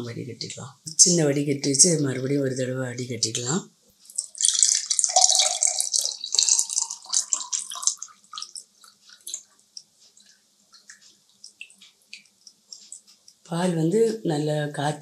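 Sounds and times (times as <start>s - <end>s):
liquid pouring into a glass: 4.1s - 9.5s
trickle and drips: 4.1s - 13.5s.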